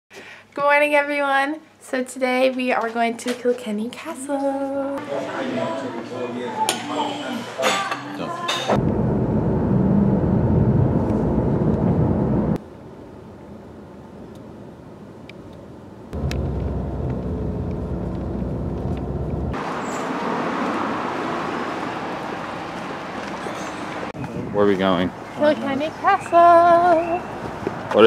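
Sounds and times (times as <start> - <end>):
car road and engine rumble: 8.7 - 12.6, 16.0 - 24.2
street ambience hiss: 12.6 - 17.2, 19.6 - 28.0.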